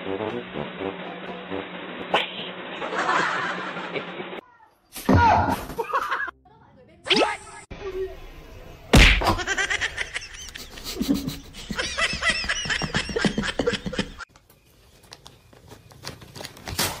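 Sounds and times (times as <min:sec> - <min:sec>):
person laughing hard: 0:09.4 - 0:14.2.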